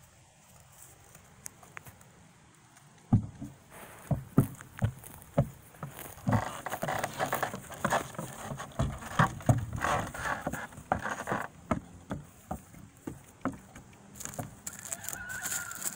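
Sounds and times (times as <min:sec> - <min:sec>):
horse hooves on wooden boards: 0:03.0 - 0:15.9.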